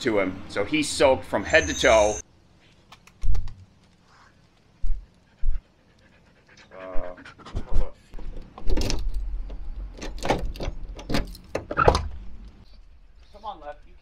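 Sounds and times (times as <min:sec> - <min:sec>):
dog panting hard: 0:04.9 - 0:07.8.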